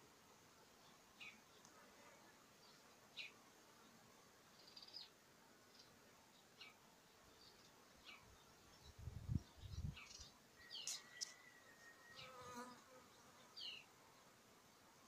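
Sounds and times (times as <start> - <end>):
birds chirping: 7.3 - 12.3.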